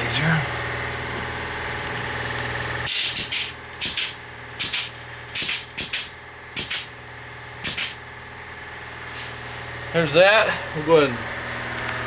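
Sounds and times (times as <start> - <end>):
grease gun hissing spurts: 2.9 - 6.9, 7.6 - 8.0.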